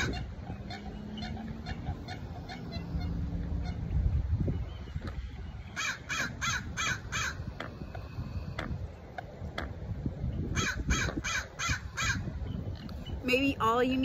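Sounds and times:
wind rumble on microphone: 0.0s - 14.0s
crow cawing: 5.7s - 7.6s.

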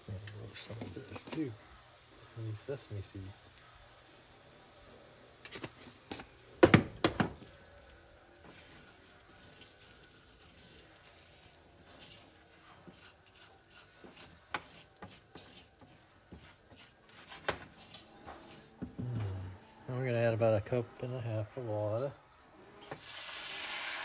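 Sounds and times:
faint sizzling in a pan: 0.0s - 24.0s
wooden spoon knocking a pan: 6.6s - 7.5s.

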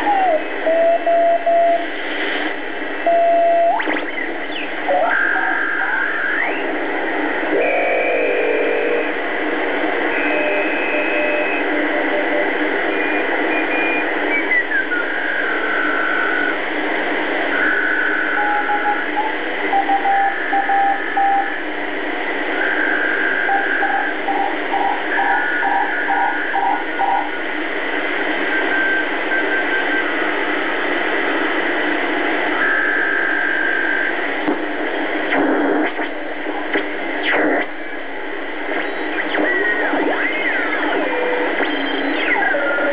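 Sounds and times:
radio static hiss: 0.0s - 42.9s
whistling radio tones: 0.0s - 42.9s
morse code tones: 10.0s - 16.6s, 17.5s - 21.6s, 22.6s - 27.4s, 28.4s - 30.2s, 40.9s - 42.9s.

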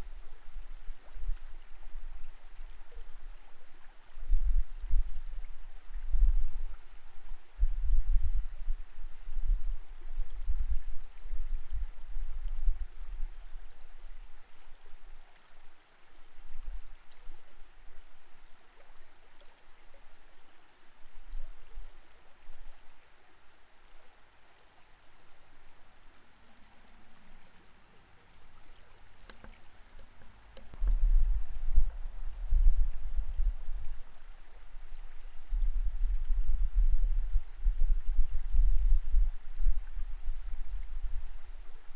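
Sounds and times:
muffled underwater water hiss: 0.0s - 41.9s
low rumbling thumps: 30.7s - 33.9s.

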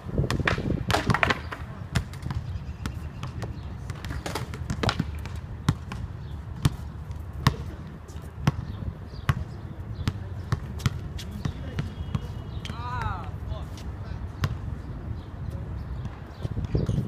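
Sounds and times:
basketball bouncing on hard court: 0.2s - 7.8s, 8.4s - 12.3s.

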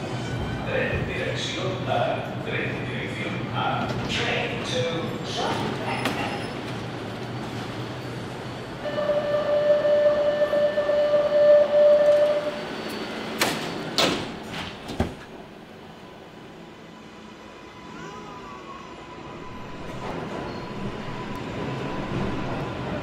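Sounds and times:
train carriage rumble: 0.0s - 23.0s
sliding doors shutting: 12.2s - 15.5s.

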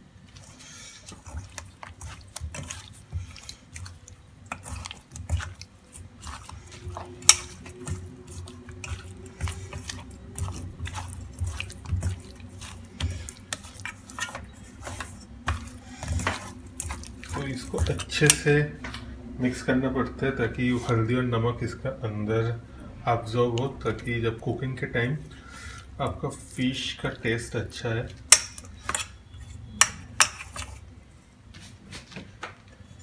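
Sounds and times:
hands squelching on raw fish: 0.2s - 18.4s.

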